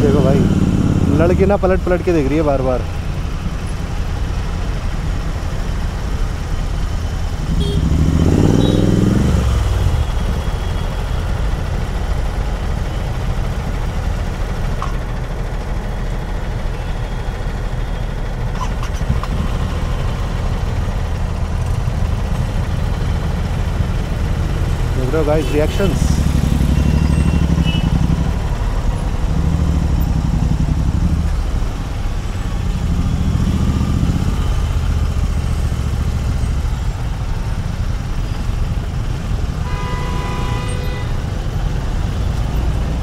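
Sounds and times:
motorcycle engine revving: 0.0s - 3.0s, 7.2s - 10.7s, 18.6s - 37.2s
motorcycle engine idling: 9.6s - 39.8s.

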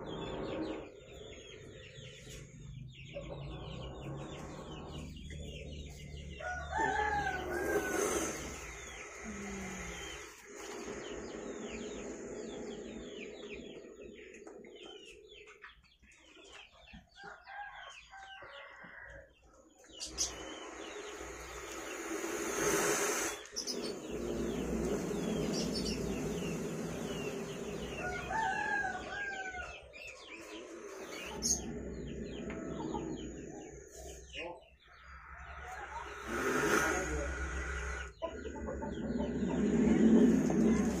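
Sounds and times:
chickens clucking: 0.0s - 41.0s
small birds chirping: 0.0s - 41.0s
rooster crowing: 6.4s - 8.5s, 27.1s - 29.9s
short burst of hiss: 20.3s - 27.8s.

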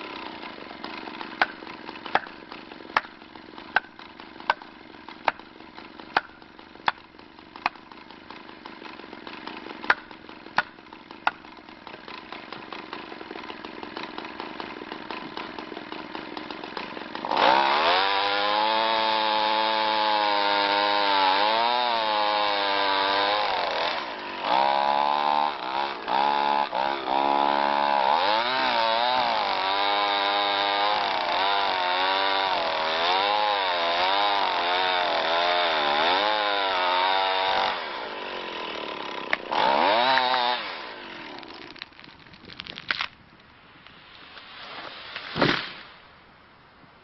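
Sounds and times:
chainsaw cutting wood: 0.0s - 43.2s, 43.8s - 46.0s
wood cracking: 38.9s - 44.5s
tree crashing to ground: 41.3s - 43.2s, 44.5s - 46.0s.

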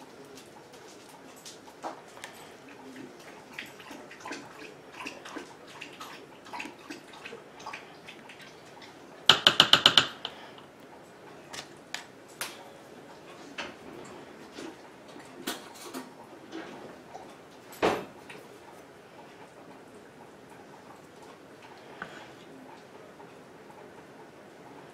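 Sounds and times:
spatula tapping metal pot: 9.3s - 10.5s.

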